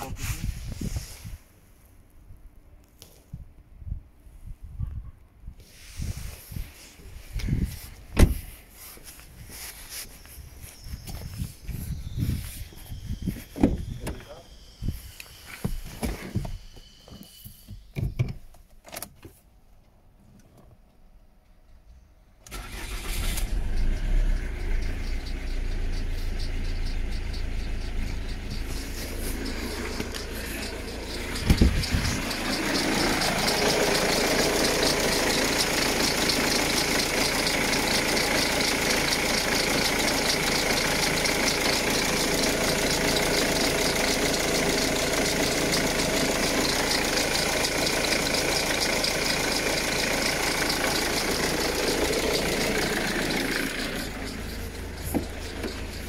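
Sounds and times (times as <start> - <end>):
diesel engine starting and idling: 5.8 - 17.4, 22.4 - 56.0
sharp thump: 8.1 - 8.5.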